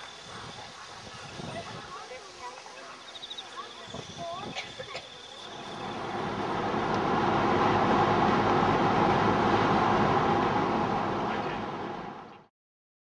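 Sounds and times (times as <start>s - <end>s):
car road and engine noise: 5.5s - 12.5s.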